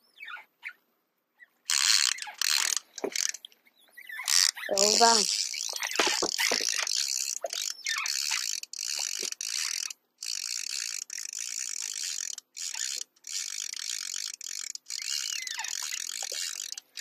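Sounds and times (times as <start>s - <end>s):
fishing reel clicking rapidly: 1.7s - 3.4s, 4.1s - 17.0s.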